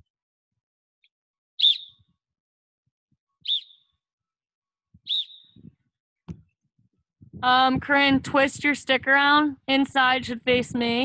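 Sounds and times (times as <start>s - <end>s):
whistle blasts: 1.6s - 2.0s, 3.4s - 3.8s, 5.1s - 5.6s.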